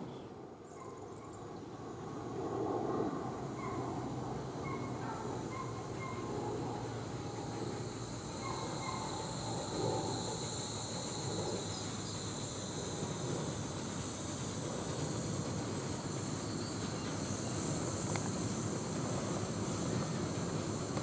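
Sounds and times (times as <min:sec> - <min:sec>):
miniature train running: 0:04.8 - 0:21.0.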